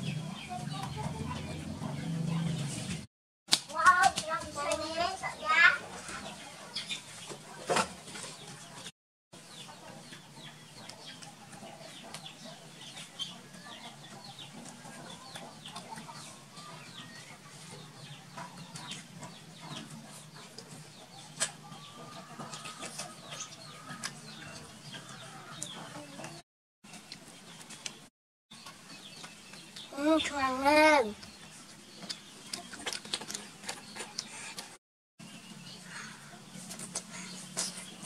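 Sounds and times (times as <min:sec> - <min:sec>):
chickens clucking: 0:00.0 - 0:03.0, 0:04.5 - 0:28.0.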